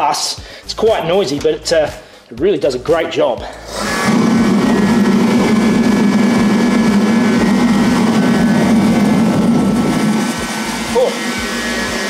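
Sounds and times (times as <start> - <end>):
space heater fan and burner roar: 3.7 - 12.0.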